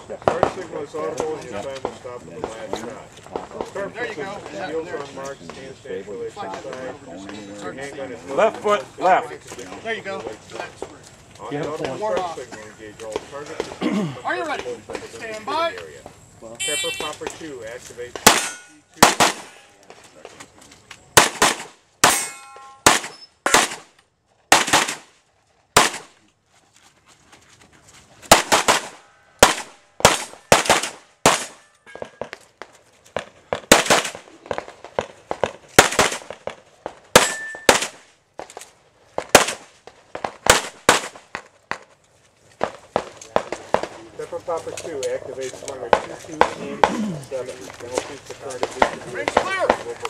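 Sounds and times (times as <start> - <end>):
pistol shots: 18.2 - 19.6, 21.2 - 23.9, 24.5 - 25.1, 25.8 - 26.1, 28.3 - 32.4, 33.5 - 38.0, 39.2 - 41.4
steel targets clanging: 18.3 - 19.7, 22.0 - 23.3, 37.2 - 37.8.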